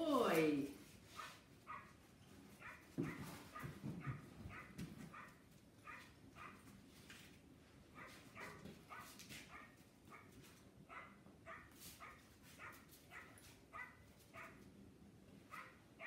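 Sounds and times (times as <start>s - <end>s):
dog barking faintly: 2.6s - 6.6s, 7.9s - 10.3s.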